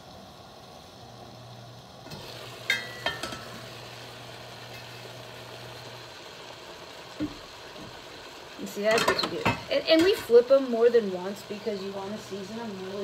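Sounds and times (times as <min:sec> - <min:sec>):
chicken sizzling in a pan: 0:00.0 - 0:13.0
low steady hum: 0:00.0 - 0:13.0
metal pan lid clinking: 0:02.6 - 0:03.6.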